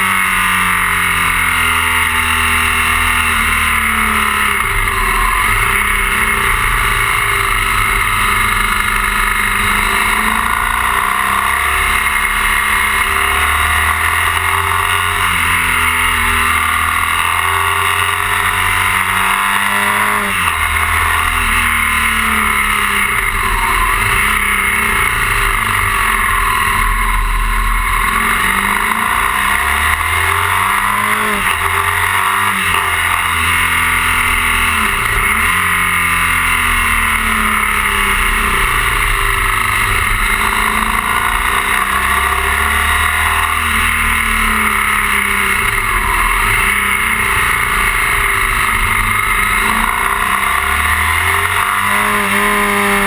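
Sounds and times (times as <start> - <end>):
motorcycle engine revving: 0.0 - 53.0
wind and road noise: 0.0 - 53.0.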